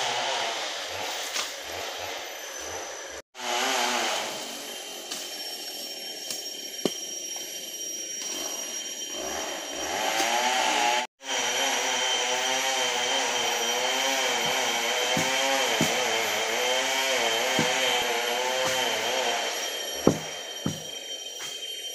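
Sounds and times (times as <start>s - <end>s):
chainsaw engine running: 0.0s - 4.6s, 9.2s - 21.0s.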